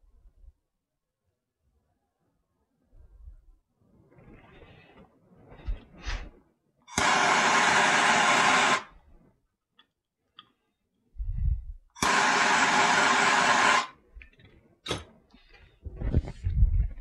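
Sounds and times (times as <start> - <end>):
heat tool hissing: 6.9 - 8.9, 12.0 - 13.9.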